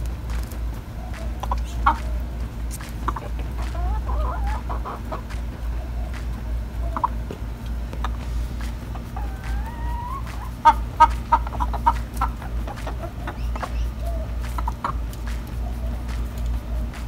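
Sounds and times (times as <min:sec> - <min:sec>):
hens clucking: 0:00.0 - 0:17.0
hen call rising in pitch: 0:00.9 - 0:07.2, 0:08.9 - 0:15.0.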